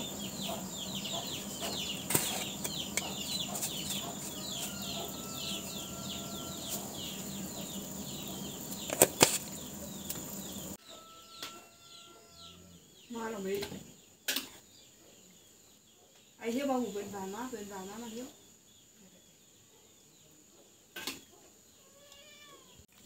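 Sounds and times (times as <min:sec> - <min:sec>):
water boiling hard in a pot: 0:04.2 - 0:10.8.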